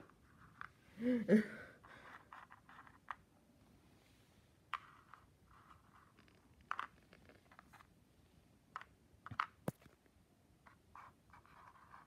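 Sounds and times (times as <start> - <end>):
board game pieces clicking: 4.8 - 7.8.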